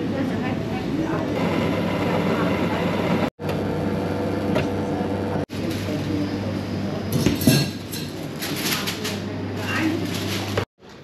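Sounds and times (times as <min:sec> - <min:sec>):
crockery and cutlery clinking: 0:07.1 - 0:09.2.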